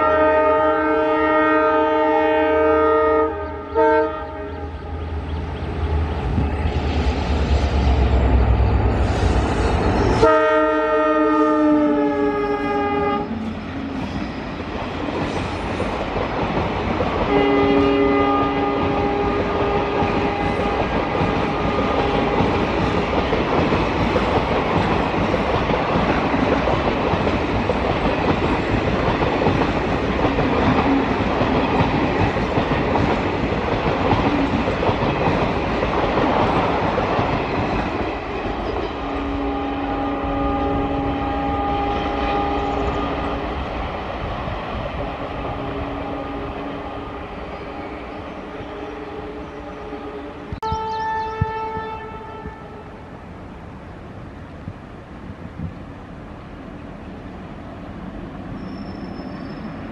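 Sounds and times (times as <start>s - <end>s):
locomotive horn blasts: 0.0s - 4.7s, 10.2s - 13.4s, 17.3s - 20.8s, 39.0s - 43.0s, 49.0s - 53.0s
train wheels on rails: 4.7s - 50.7s, 51.3s - 59.9s.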